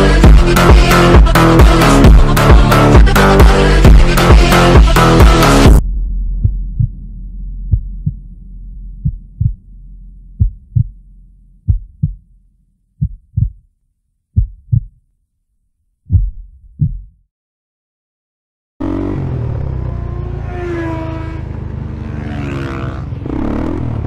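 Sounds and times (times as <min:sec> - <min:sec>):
heartbeat thumps: 0:01.2 - 0:12.3, 0:13.0 - 0:13.7, 0:14.4 - 0:15.0, 0:16.1 - 0:17.2
low hum: 0:05.2 - 0:15.0.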